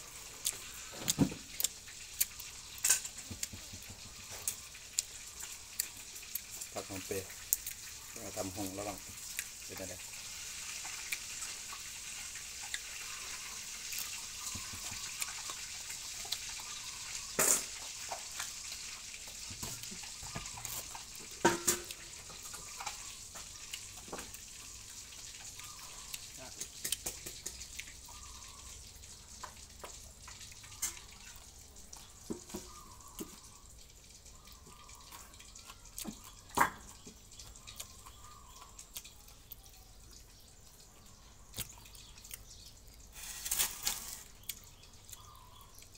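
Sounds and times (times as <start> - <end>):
wet chewing and smacking: 0.0 - 45.9.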